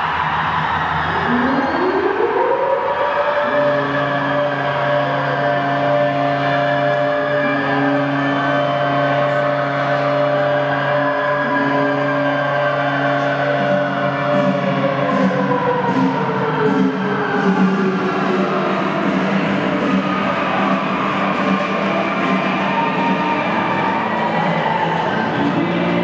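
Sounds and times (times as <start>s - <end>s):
goal siren: 0.6s - 26.0s
low steady horn tone: 3.4s - 15.1s.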